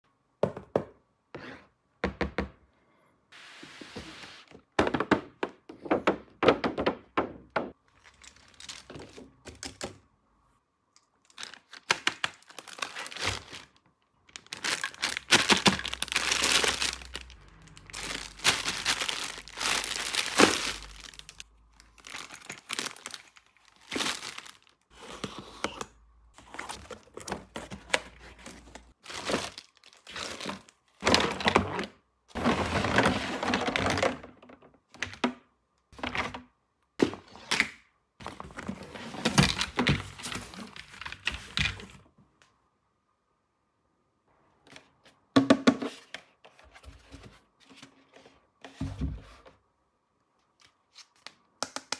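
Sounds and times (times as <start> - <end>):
clicks and knocks of plastic parts: 4.8 - 10.1
packaging crinkling and rustling: 7.9 - 9.4, 11.2 - 25.4, 26.4 - 34.3.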